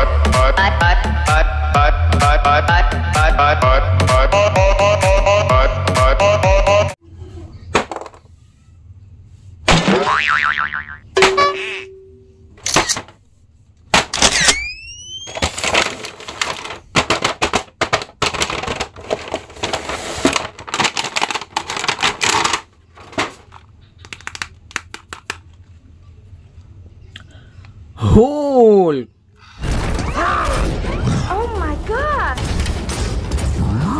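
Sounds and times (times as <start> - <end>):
plastic packaging crinkling: 15.2 - 25.3
sharp plastic clicks: 24.0 - 25.6.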